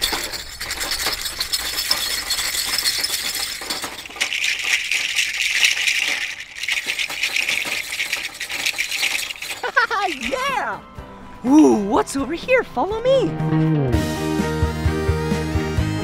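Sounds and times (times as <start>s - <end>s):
gourd shakers rattling: 0.0s - 10.8s.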